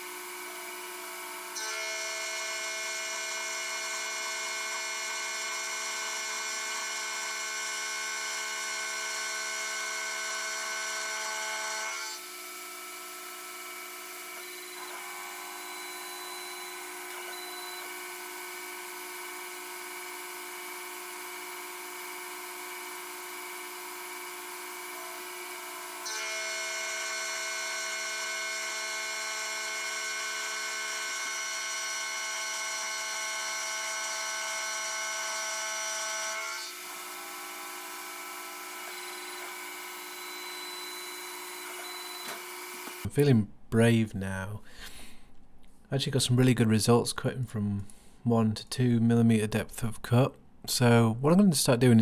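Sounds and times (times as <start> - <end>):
milling machine whine: 14.3 - 22.0, 22.8 - 43.1.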